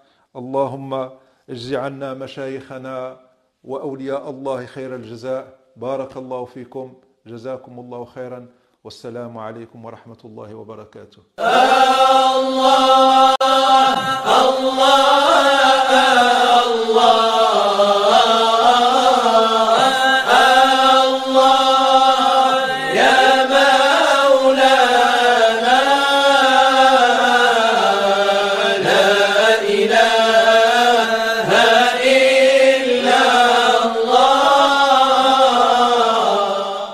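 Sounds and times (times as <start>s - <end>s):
solo voice chanting: 11.4s - 36.9s.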